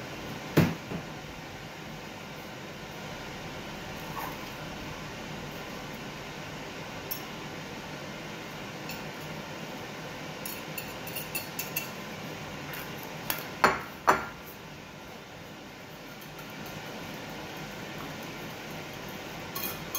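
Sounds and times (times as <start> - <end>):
ceramic clinking on glass bowl: 10.4 - 12.0, 19.5 - 19.9.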